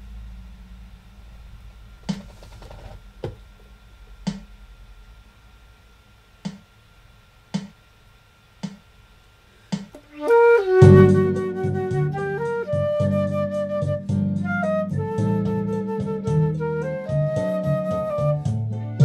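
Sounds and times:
flute and clarinet playing: 10.1 - 19.0.

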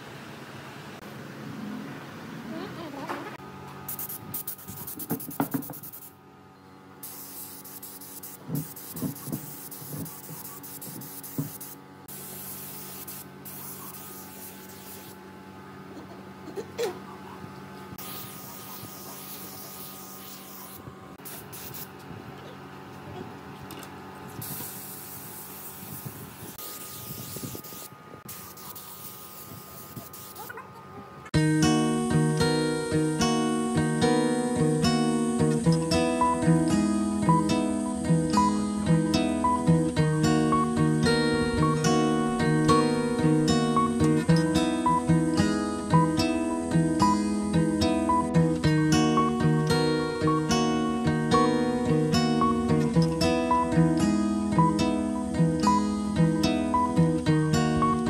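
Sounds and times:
spray gun hissing: 3.9 - 6.2, 7.0 - 15.2, 18.0 - 21.9, 24.4 - 30.6
acoustic guitar music: 31.4 - 58.0.

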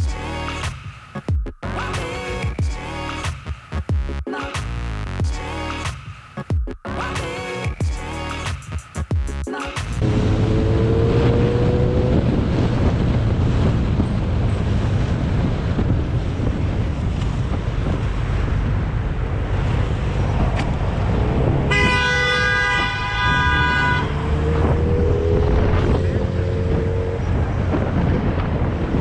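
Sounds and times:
heavy wind rush: 9.9 - 29.0
motorcycle engine at speed: 10.0 - 29.0
vehicle horn blaring: 21.7 - 24.6.

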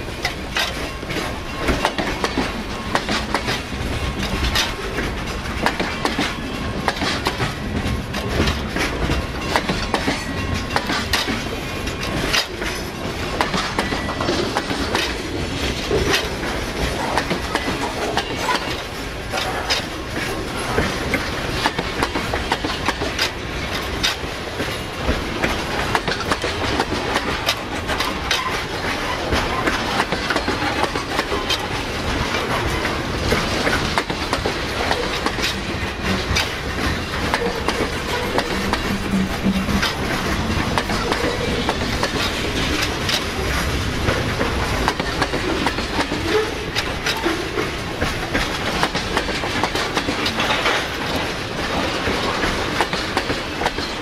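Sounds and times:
train rumble: 0.0 - 54.0
train wheels clicking over rail joints: 0.0 - 54.0.

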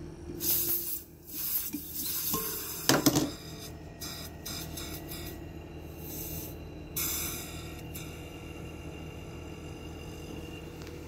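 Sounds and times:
faint gas hiss: 0.4 - 8.4.

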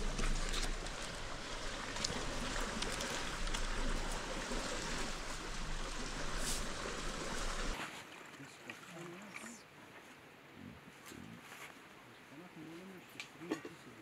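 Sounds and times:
steady rushing outdoor noise: 0.0 - 7.8.

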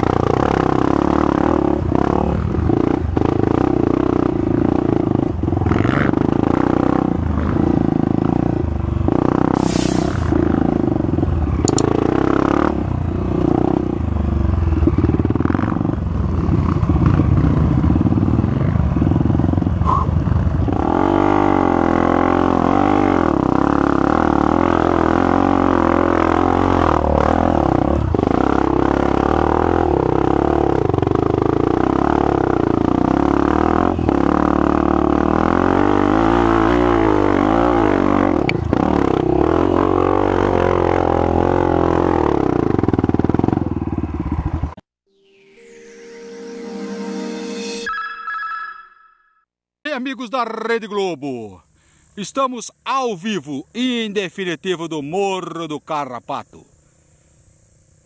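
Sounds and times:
dirt bike engine revving: 0.0 - 44.8.

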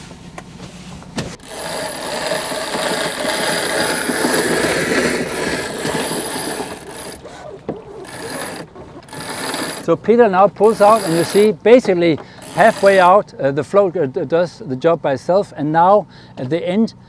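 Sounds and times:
rope clutch click: 1.4 - 9.9.

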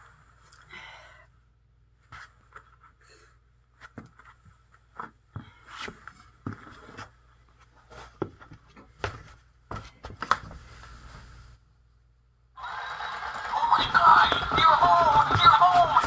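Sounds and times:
footsteps on hardwood floor: 7.9 - 10.6, 13.8 - 16.0.

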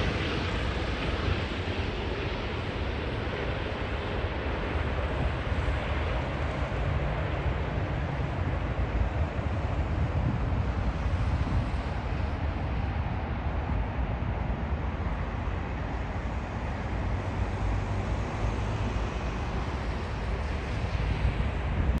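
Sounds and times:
distant jet engines rumbling: 0.0 - 22.0.

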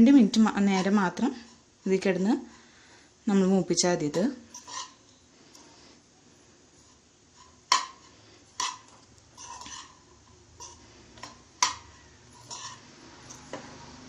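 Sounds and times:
spoon scraping in saucepan: 4.0 - 5.7, 6.8 - 14.0.

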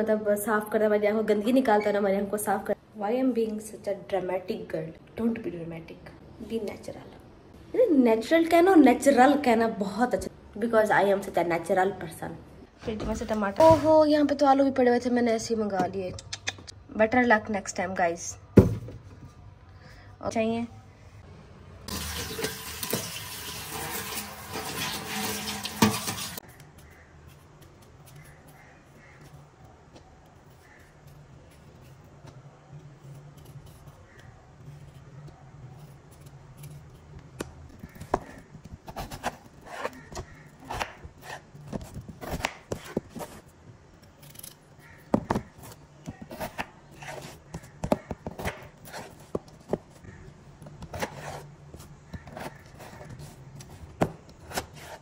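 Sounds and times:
tap water pouring into colander: 21.9 - 26.4
knife cutting potatoes: 32.8 - 55.0
peeler scraping potatoes: 37.7 - 49.4, 50.8 - 55.0.

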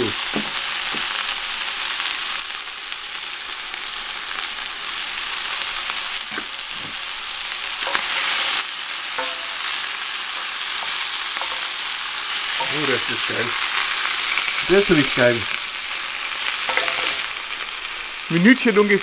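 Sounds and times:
chicken sizzling in hot oil: 0.0 - 19.0
spatula scraping pan: 9.2 - 17.6.

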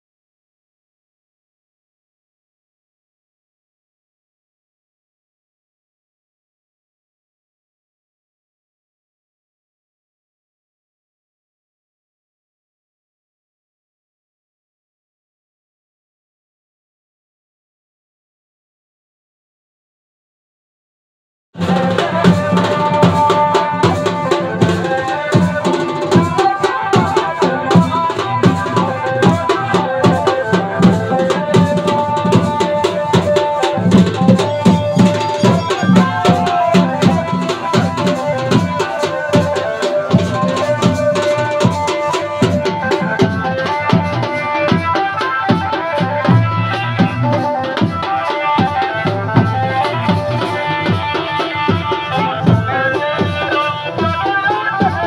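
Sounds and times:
dhol drums playing fast rhythm: 21.6 - 55.0
held melody: 21.6 - 55.0.

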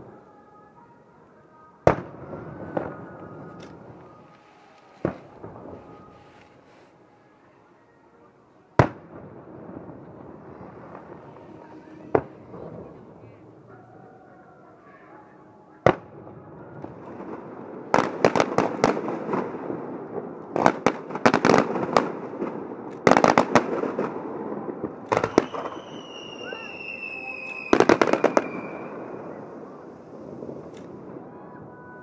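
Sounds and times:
firework bangs: 1.8 - 6.8, 8.8 - 13.7, 15.8 - 31.3
crackling firework bangs: 4.8 - 6.7, 15.8 - 31.2.

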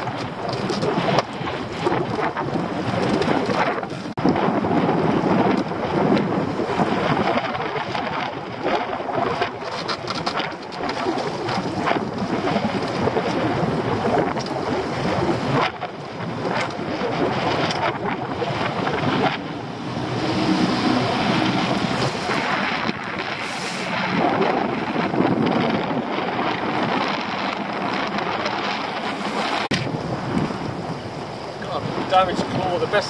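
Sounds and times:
choppy sea washing around boat: 0.0 - 33.0
wind buffeting microphone: 0.0 - 33.0.

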